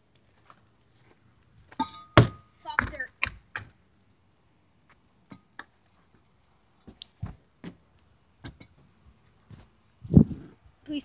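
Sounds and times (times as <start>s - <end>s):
light footsteps on concrete and dirt: 0.0s - 3.8s, 5.8s - 10.5s.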